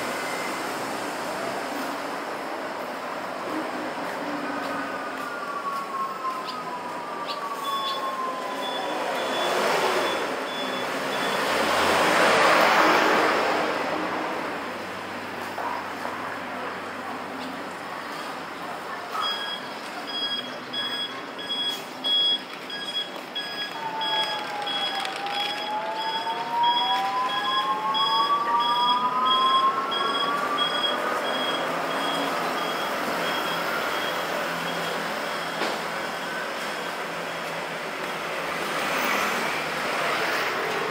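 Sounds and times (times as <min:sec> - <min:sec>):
bus engine whine: 0:00.0 - 0:40.9
passing traffic: 0:00.0 - 0:40.9
faint high-pitched beeping: 0:05.4 - 0:11.6, 0:19.2 - 0:37.5
car driving past: 0:08.6 - 0:14.8.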